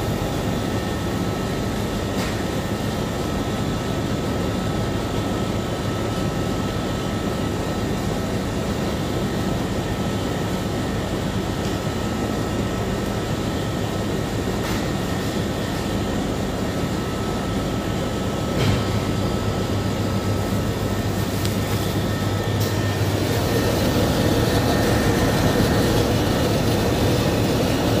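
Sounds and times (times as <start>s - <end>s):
low steady hum: 16.2s - 28.0s
machinery drone: 18.0s - 28.0s.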